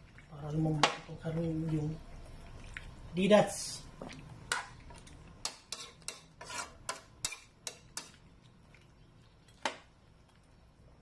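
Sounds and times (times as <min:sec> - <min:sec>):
metal spatula scraping a wok: 0:05.4 - 0:08.1.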